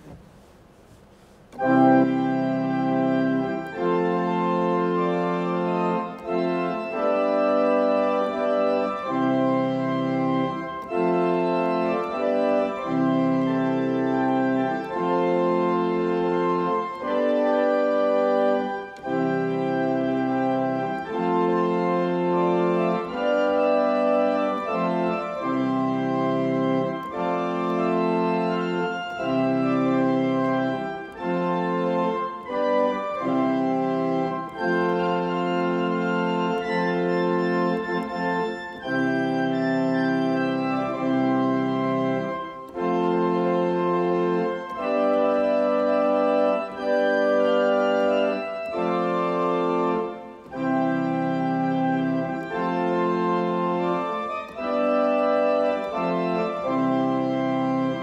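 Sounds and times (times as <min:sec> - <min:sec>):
pipe organ playing a hymn: 0:01.5 - 0:58.0.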